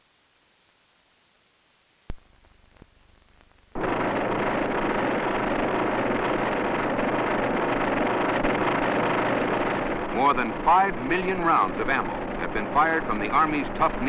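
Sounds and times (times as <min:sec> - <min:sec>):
rapid automatic gunfire: 0:03.8 - 0:14.0.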